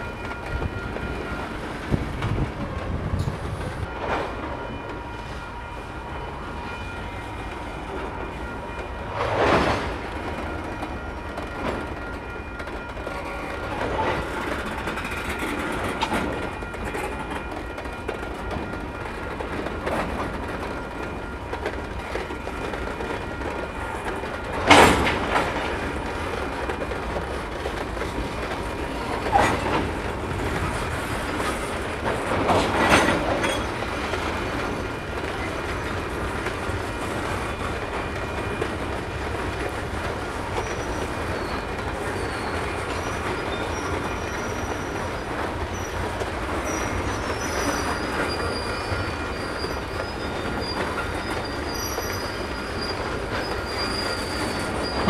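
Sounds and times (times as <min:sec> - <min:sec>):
freight train wheels rumbling on rail: 0:00.0 - 0:55.0
faint high wheel squeal: 0:40.6 - 0:55.0.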